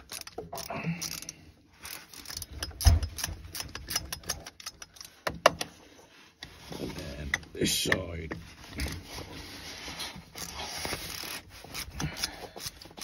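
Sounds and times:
screwdriver clicks and metal scrapes: 0.0s - 5.7s.

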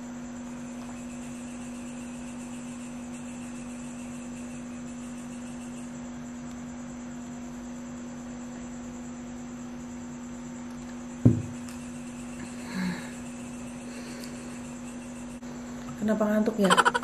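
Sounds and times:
electrical hum: 0.0s - 17.0s
sharp low thump: 11.2s - 11.6s.

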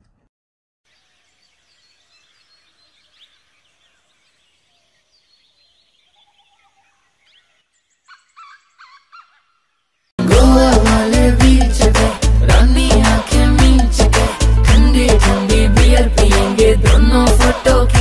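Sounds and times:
faint bird chirps: 0.9s - 10.1s.

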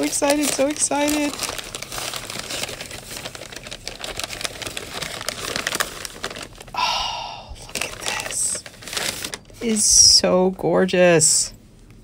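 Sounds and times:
paper bag crinkling: 0.0s - 6.9s, 7.6s - 10.1s.

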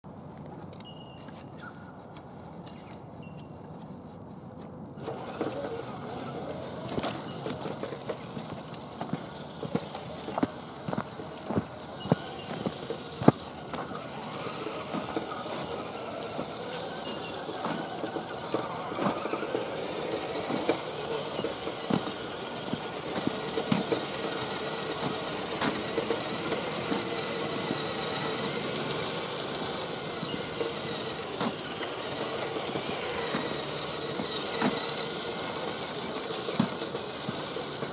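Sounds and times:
toy truck motor whining: 5.0s - 37.9s.

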